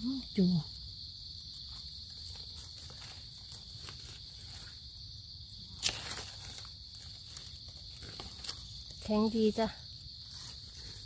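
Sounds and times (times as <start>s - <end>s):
dry leaves rustling and crackling: 1.7s - 4.9s, 5.8s - 9.6s, 10.3s - 11.0s.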